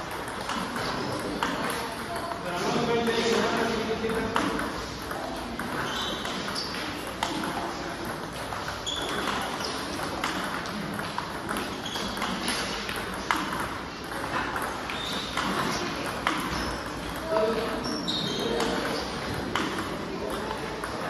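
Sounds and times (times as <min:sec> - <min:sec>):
table tennis ball clicks: 0:00.1 - 0:02.4, 0:04.1 - 0:21.0.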